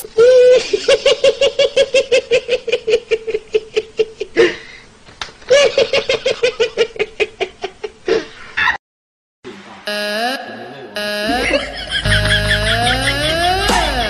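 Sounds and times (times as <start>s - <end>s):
person laughing: 11.2s - 14.0s.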